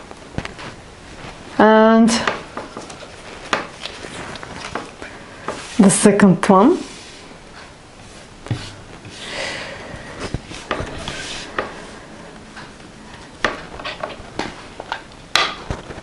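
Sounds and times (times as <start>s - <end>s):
paper rustling: 2.4s - 5.9s.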